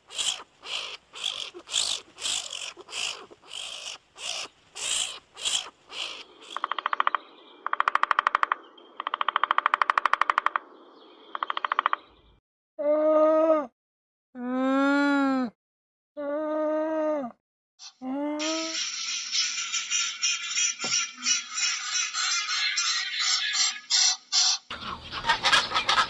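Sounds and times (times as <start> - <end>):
skunk huffing: 0.0 - 6.2
woodpecker drumming: 0.0 - 12.2, 18.4 - 26.0.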